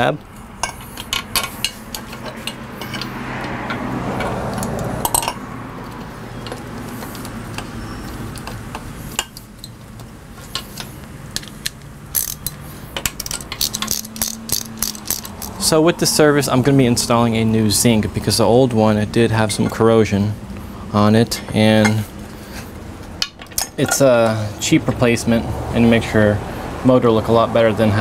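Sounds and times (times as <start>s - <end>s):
socket wrench clicking on bolts: 10.5s - 15.6s.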